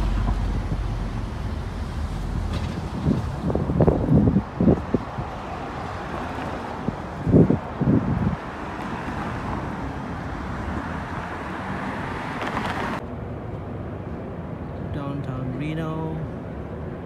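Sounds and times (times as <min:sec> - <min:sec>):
wind on microphone: 0:00.0 - 0:13.0
city street traffic: 0:00.0 - 0:17.0.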